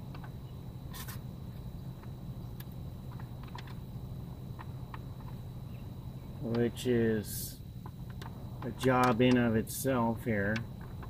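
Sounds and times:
faint high whine: 0.0 - 11.0
steady low hum: 0.0 - 11.0
plastic shroud clicking and tapping: 7.8 - 9.5.

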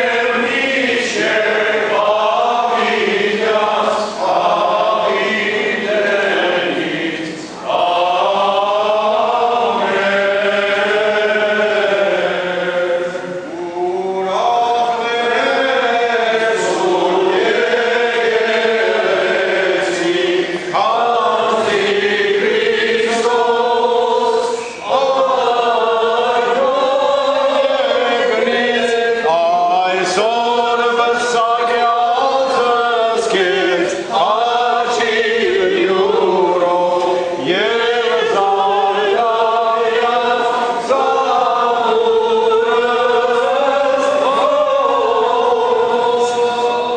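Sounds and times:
choir singing church chant: 0.0 - 46.9.

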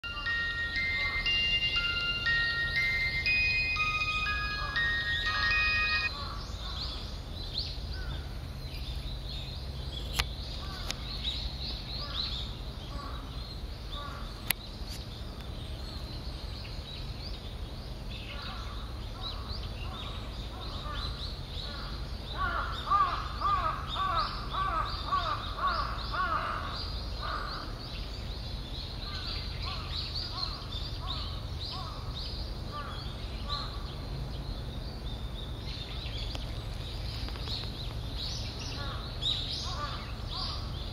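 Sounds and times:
high bird chirps: 0.0 - 7.0.

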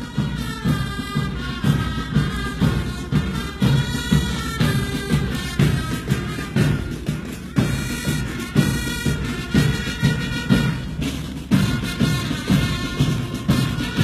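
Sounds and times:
marching band music: 0.0 - 14.0.

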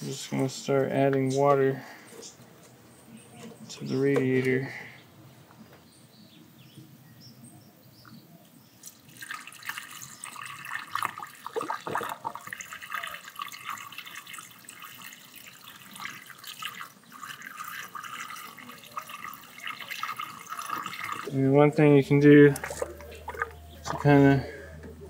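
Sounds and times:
water pouring into funnel: 8.9 - 24.6.

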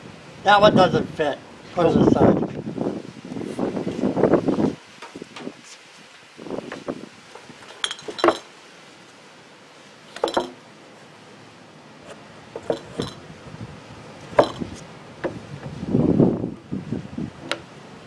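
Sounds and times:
glass bottle clinking: 7.6 - 8.5, 10.2 - 10.6, 12.6 - 13.2, 14.4 - 14.8.

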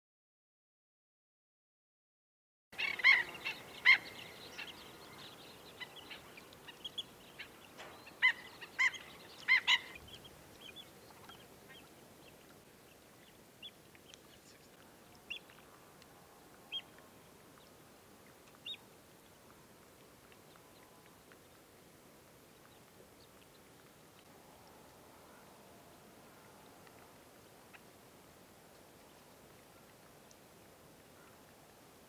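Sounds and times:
birds calling with sharp notes: 2.8 - 11.9.

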